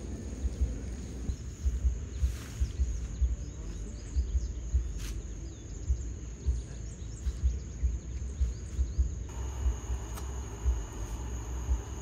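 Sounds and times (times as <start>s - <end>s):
wind buffeting microphone: 0.0s - 3.4s
insect drone: 0.0s - 3.6s, 4.2s - 12.0s
broad hiss: 0.0s - 3.7s
faint bird chirps: 0.5s - 12.0s.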